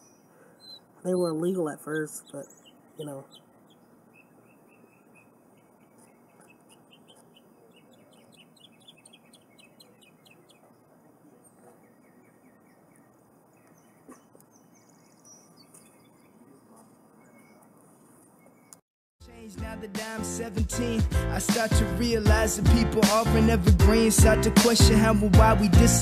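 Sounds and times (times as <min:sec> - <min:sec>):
faint bird chirping: 0:00.0 - 0:18.8.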